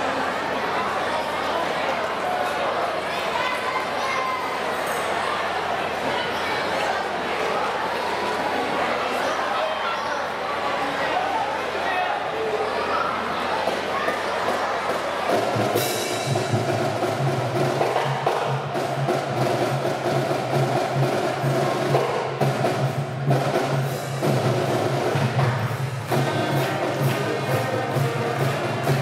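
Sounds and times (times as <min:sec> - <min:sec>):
percussion beat: 0:14.0 - 0:29.0
trumpets: 0:15.3 - 0:29.0
saxophones: 0:25.3 - 0:29.0.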